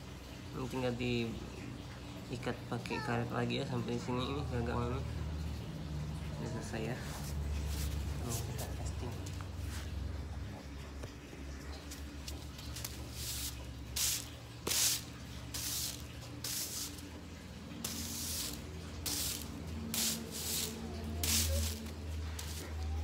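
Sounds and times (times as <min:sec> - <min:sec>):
broom sweeping concrete floor: 0:07.0 - 0:10.0, 0:11.9 - 0:23.0.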